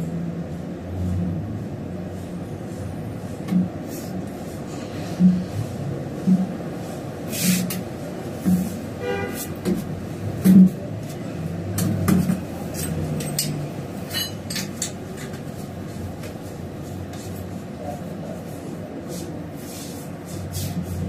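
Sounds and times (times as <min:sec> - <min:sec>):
steady low hum: 0:00.0 - 0:21.0
metallic clinks of tools: 0:12.8 - 0:15.0.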